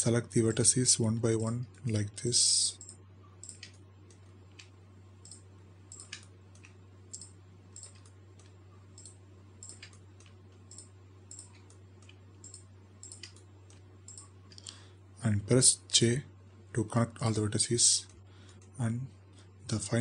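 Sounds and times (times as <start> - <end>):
steady low hum: 0.0 - 20.0
computer mouse clicking: 2.8 - 14.8.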